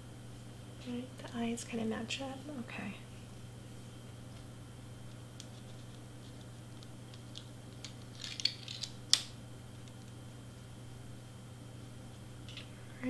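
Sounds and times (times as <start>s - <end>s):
paper crinkling: 5.4s - 9.0s.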